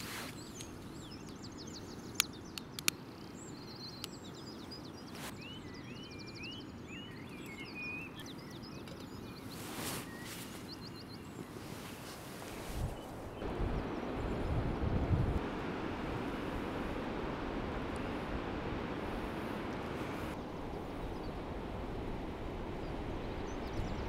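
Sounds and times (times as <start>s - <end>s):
low outdoor hiss: 0.0s - 24.0s
small birds chirping: 0.0s - 24.0s
sharp clicks: 2.1s - 3.0s.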